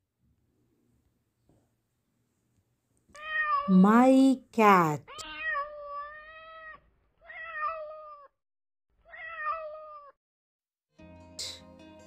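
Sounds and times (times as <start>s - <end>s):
cat meowing: 3.1s - 3.7s, 5.1s - 8.4s, 9.0s - 10.2s.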